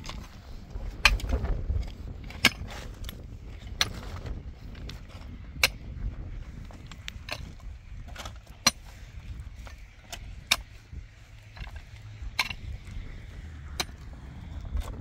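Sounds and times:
steady low rumble: 0:00.0 - 0:15.0
metal tool striking rocky soil: 0:01.0 - 0:01.4, 0:02.2 - 0:04.9, 0:05.6 - 0:06.0, 0:07.2 - 0:08.9, 0:09.6 - 0:10.7, 0:11.6 - 0:12.8, 0:13.7 - 0:14.1.

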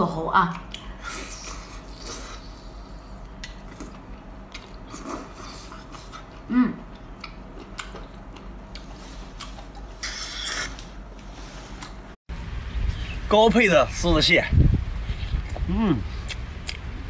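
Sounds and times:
wet mouth clicks and chewing: 0:03.2 - 0:10.9, 0:15.1 - 0:16.9.

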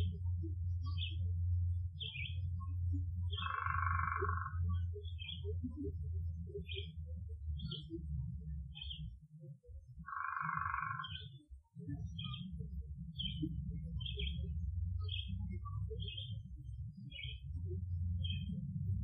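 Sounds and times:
steady low rumble: 0:00.0 - 0:19.0
high animal chirps: 0:03.4 - 0:04.6, 0:10.1 - 0:11.3.

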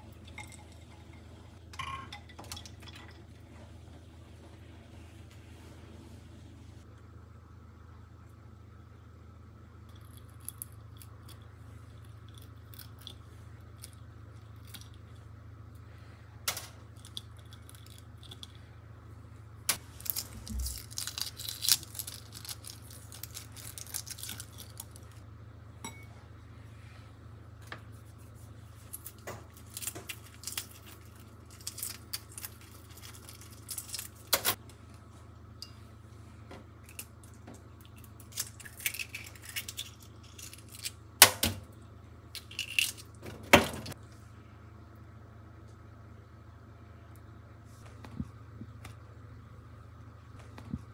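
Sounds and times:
low steady hum: 0:00.0 - 0:50.9
eggshell cracking: 0:19.7 - 0:25.2, 0:29.0 - 0:34.4, 0:37.8 - 0:41.4, 0:42.3 - 0:43.2.

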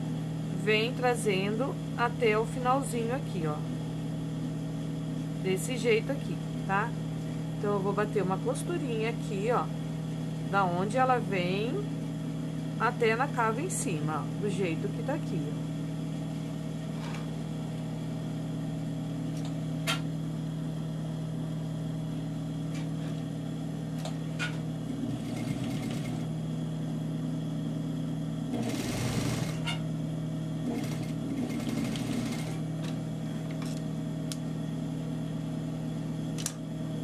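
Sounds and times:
sewing machine stitching: 0:25.0 - 0:26.3, 0:28.5 - 0:29.7, 0:30.7 - 0:32.6.

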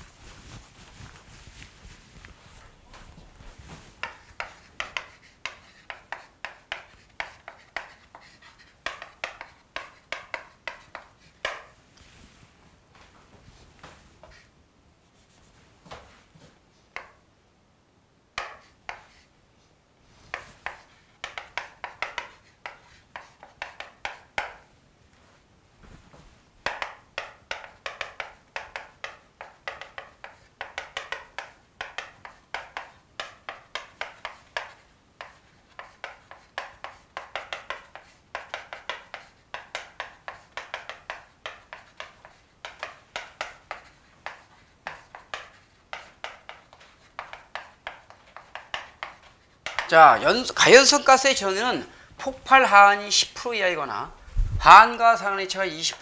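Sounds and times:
chalk writing on chalkboard: 0:00.3 - 0:11.8, 0:13.8 - 0:14.5, 0:18.4 - 0:19.3, 0:20.2 - 0:24.7, 0:26.6 - 0:51.6.

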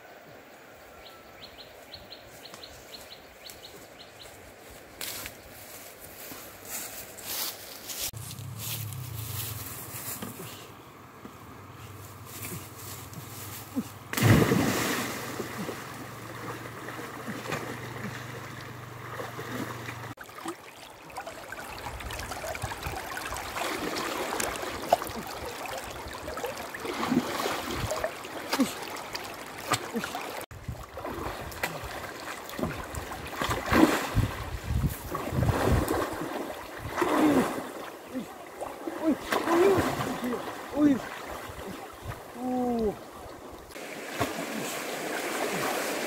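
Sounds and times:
running river water: 0:00.0 - 0:46.0
wading through water: 0:11.7 - 0:46.0
water splashing: 0:14.1 - 0:46.0.

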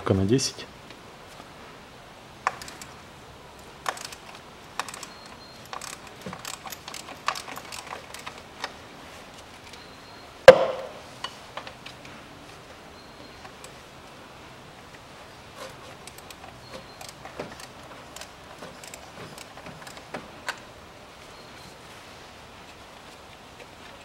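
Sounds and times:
hand tools clicking on metal: 0:02.4 - 0:03.0, 0:03.8 - 0:08.8, 0:15.6 - 0:20.7
sharp metallic knock: 0:10.5 - 0:11.0.

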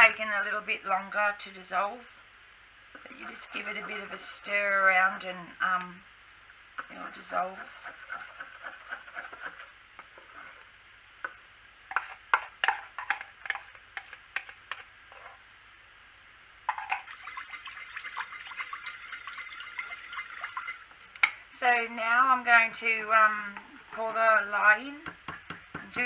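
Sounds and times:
metal spoon scraping plastic bowl: 0:03.0 - 0:04.4, 0:06.8 - 0:10.6
liquid sloshing: 0:16.8 - 0:20.9.

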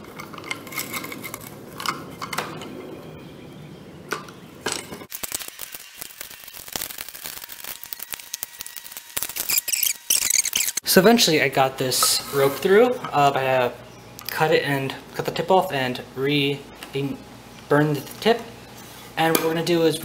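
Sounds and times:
hand drill gears clicking: 0:05.1 - 0:10.8
drill bit rasping in wood: 0:07.9 - 0:10.8.

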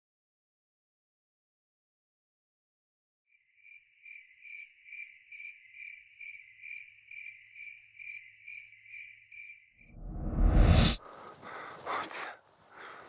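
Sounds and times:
cricket chirping: 0:03.3 - 0:09.9.

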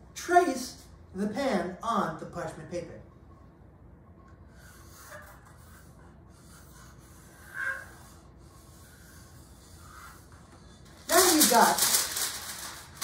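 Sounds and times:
pencil scratching on paper: 0:04.6 - 0:10.8.

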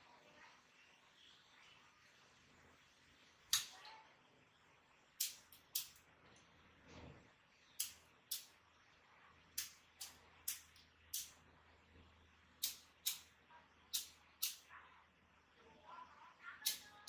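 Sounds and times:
faint low hum: 0:00.0 - 0:17.0
lighting console buttons clicking: 0:12.6 - 0:13.3, 0:13.9 - 0:14.7.

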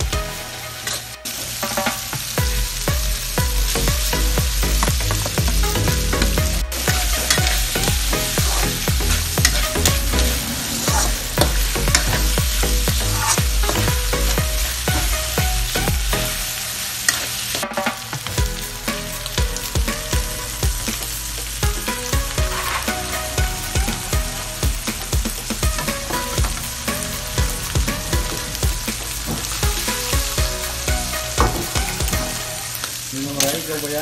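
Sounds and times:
meat sizzling in a wok: 0:00.0 - 0:34.0
metal spatula scraping a pan: 0:22.5 - 0:23.1.

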